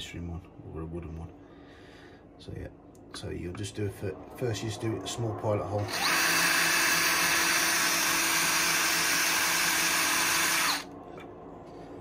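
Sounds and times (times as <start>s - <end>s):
cordless drill drilling steel: 5.8s - 10.9s.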